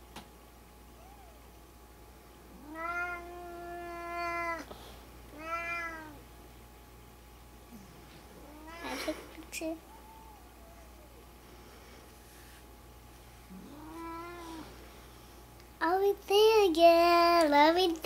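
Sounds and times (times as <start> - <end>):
cat meowing: 2.6 - 4.6, 5.4 - 6.2, 13.7 - 14.6.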